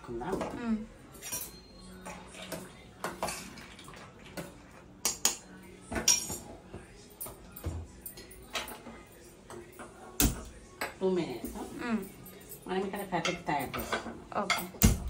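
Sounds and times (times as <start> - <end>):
metal pot and utensils clinking: 0.0 - 6.6, 10.8 - 15.0.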